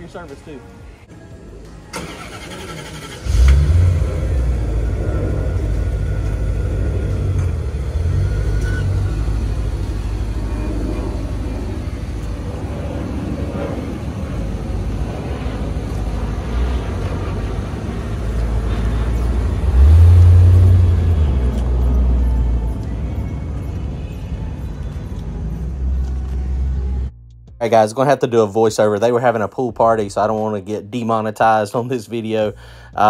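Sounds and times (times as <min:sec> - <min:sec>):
car engine driving off: 0:01.9 - 0:27.1.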